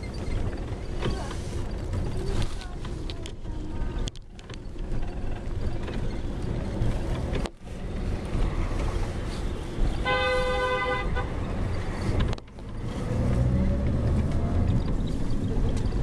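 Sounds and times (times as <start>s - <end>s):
city traffic rumble: 0.0s - 16.0s
car horn: 10.0s - 11.4s.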